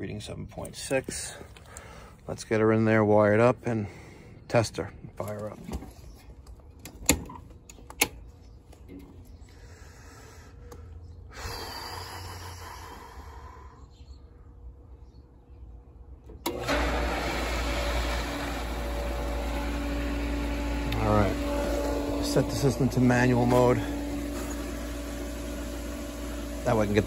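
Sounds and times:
pump motor humming: 16.4 - 27.0.

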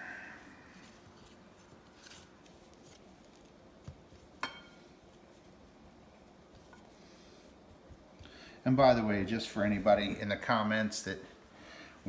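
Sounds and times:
hands rubbing and scuffing: 0.8 - 8.4
light clink against plate: 4.4 - 4.8.

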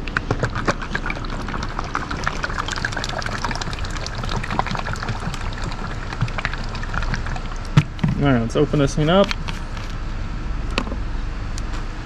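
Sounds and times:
fluid sloshing in plastic bottle: 0.0 - 8.3.

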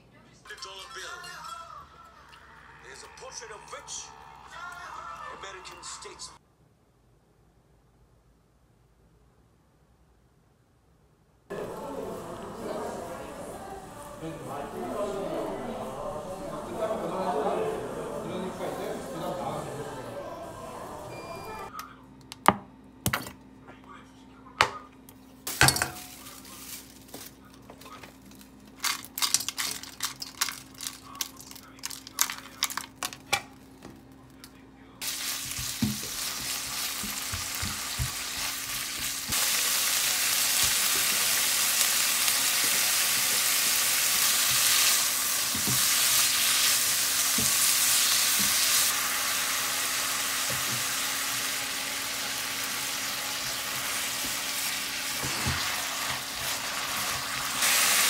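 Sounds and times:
food sizzling in hot pan: 35.0 - 58.0
utensil knocking in pan: 35.4 - 39.4.

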